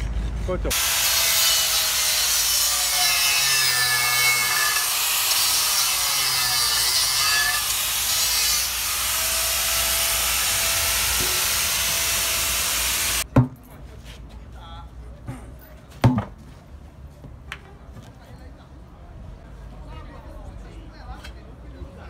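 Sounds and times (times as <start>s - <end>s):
angle grinder grinding metal: 0.7s - 13.2s.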